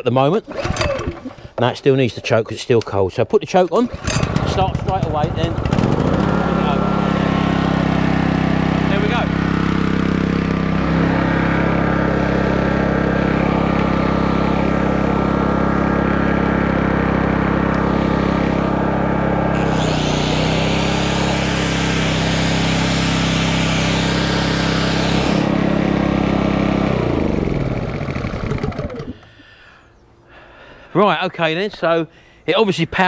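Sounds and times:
angle grinder spinning: 3.9 - 7.9, 8.8 - 29.2
generator winding down: 3.9 - 29.5
generator engine running: 3.9 - 29.8.

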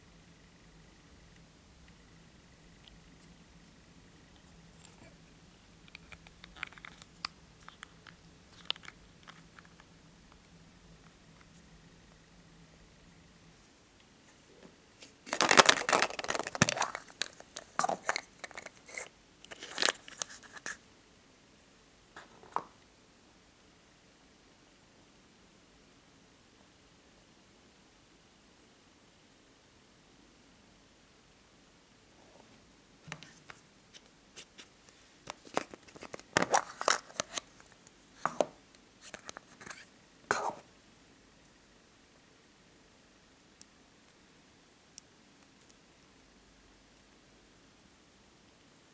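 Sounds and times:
plastic capsule crackling open: 5.8 - 9.9, 15.0 - 20.8, 35.3 - 37.8, 39.0 - 39.9.

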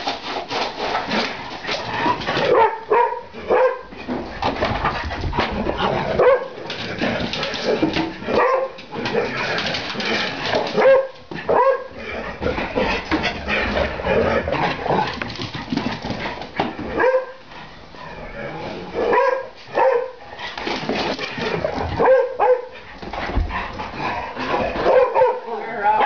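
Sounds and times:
dogs scuffling: 0.0 - 17.7, 19.8 - 25.4
dogs barking and yipping: 2.3 - 3.9, 6.2 - 6.8, 7.4 - 12.0, 16.5 - 17.4, 19.0 - 20.2, 21.4 - 22.8, 24.7 - 26.0.

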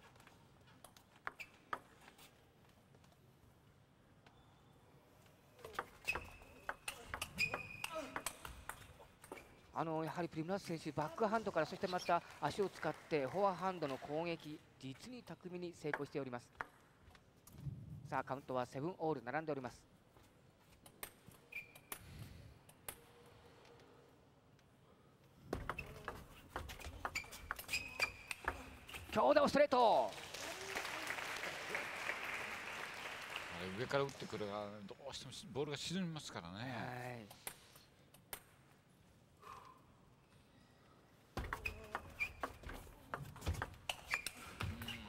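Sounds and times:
short high squeaks: 6.0 - 8.2, 21.4 - 22.1, 25.7 - 29.1, 41.5 - 42.7, 43.9 - 45.0.

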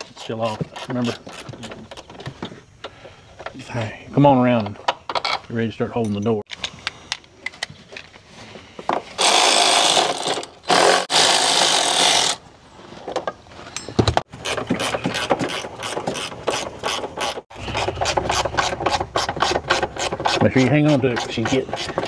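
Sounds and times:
electric ratchet motor running: 9.2 - 12.4.

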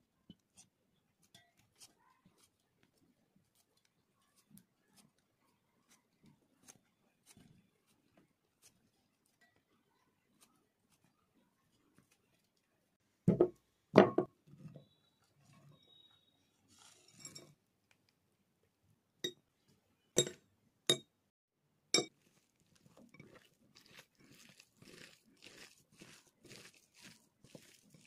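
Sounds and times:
fingers mashing potatoes: 0.1 - 12.8, 22.0 - 28.0.

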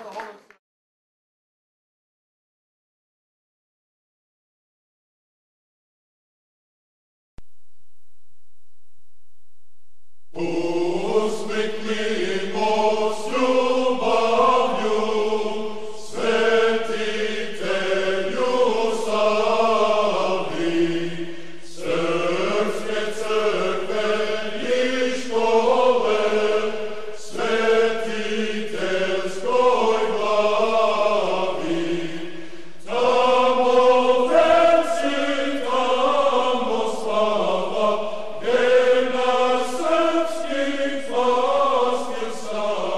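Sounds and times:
male choir chanting unaccompanied: 10.4 - 42.9.

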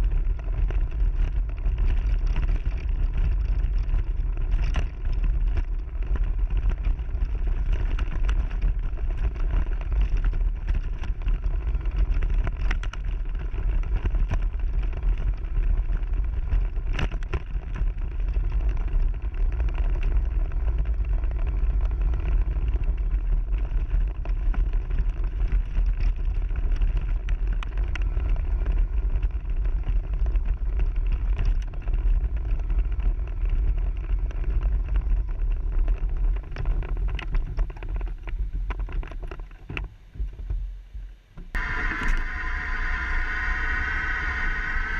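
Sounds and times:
ground vibration rumble: 0.0 - 44.9
wind buffeting: 41.5 - 44.9.

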